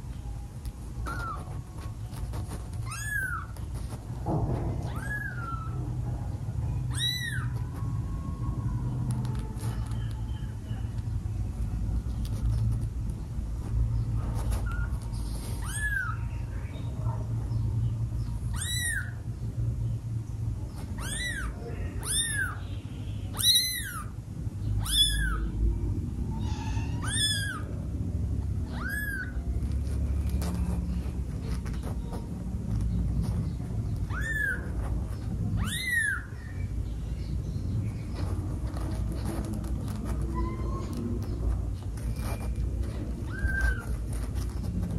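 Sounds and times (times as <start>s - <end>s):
low background hum: 0.0s - 44.9s
kitten mewing: 2.8s - 3.6s, 6.9s - 7.8s, 14.6s - 16.3s, 18.5s - 19.2s, 20.9s - 22.6s, 24.8s - 25.6s, 26.3s - 27.8s, 28.5s - 29.6s, 34.0s - 34.8s, 35.5s - 36.3s.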